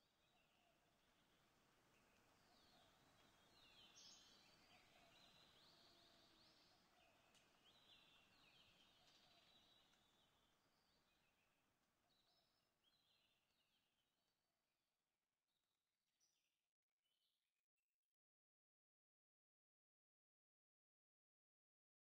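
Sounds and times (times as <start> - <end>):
faint birdsong chirps: 0.0 - 13.9.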